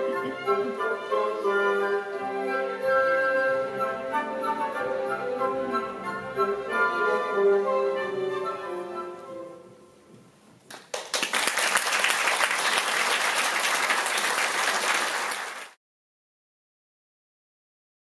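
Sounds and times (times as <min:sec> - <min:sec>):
classical music: 0:00.0 - 0:10.6
audience applause: 0:10.7 - 0:15.8.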